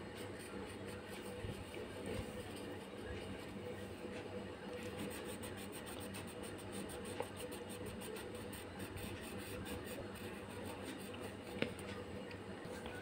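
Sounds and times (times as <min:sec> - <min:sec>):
crayon scratching on paper: 0:04.8 - 0:11.4.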